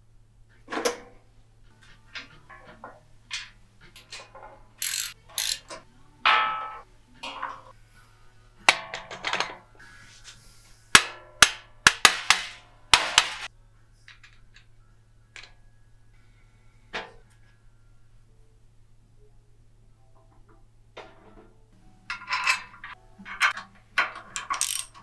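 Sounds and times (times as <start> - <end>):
metal tools clinking and knocking: 1.7 - 7.7, 8.7 - 9.6, 22.1 - 25.0.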